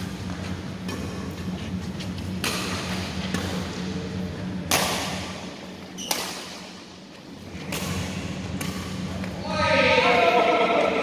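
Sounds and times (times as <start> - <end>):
rackets hitting shuttlecock: 0.0 - 1.4, 2.2 - 3.9, 4.6 - 6.8, 7.5 - 9.4
steady low hum: 0.0 - 11.0.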